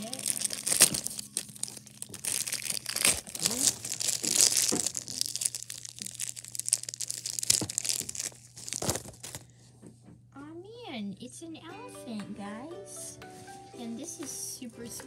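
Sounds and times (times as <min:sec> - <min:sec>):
paper wrapping tearing and crumpling: 0:00.0 - 0:09.5.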